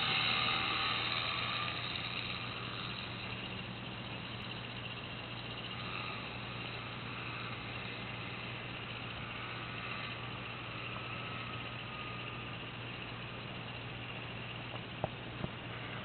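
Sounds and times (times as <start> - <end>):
gyrocopter engine droning: 0.0 - 16.0
steady hiss: 0.0 - 16.0.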